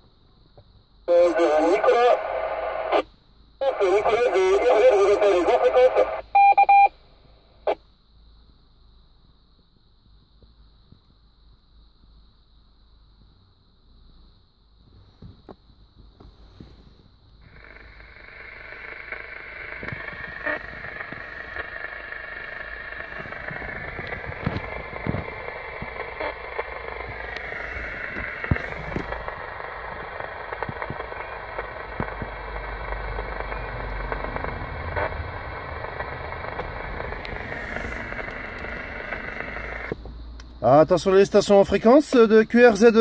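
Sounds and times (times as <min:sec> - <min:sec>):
radio speaker hiss and crackle: 0:00.6 - 0:07.9, 0:14.8 - 0:43.0.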